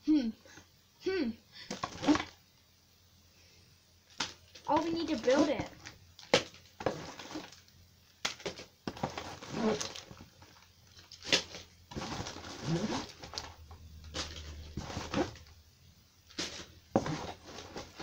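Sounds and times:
plastic bags rustling and crinkling: 1.6s - 2.4s, 4.0s - 15.6s, 16.2s - 18.0s.

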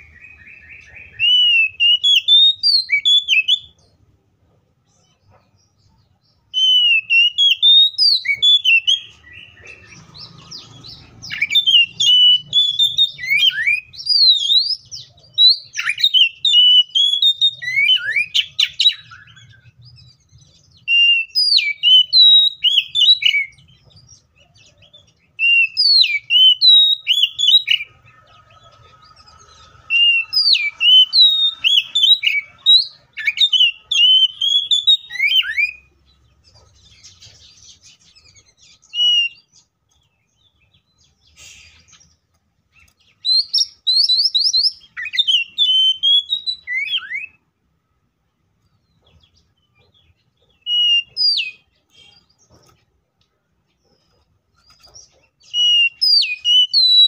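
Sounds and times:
bird singing whistles: 0.0s - 3.8s, 6.5s - 9.6s, 10.5s - 19.8s, 20.7s - 23.6s, 24.8s - 27.9s, 29.9s - 35.9s, 38.6s - 39.7s, 43.0s - 47.4s, 50.6s - 52.3s, 55.4s - 57.0s.

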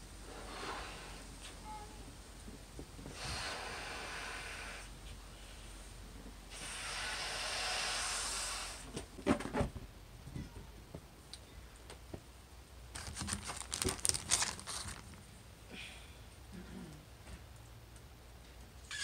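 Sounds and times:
breath blown into balloon: 3.1s - 4.9s, 6.5s - 8.9s
crackly rustling and clicking: 12.9s - 15.3s.

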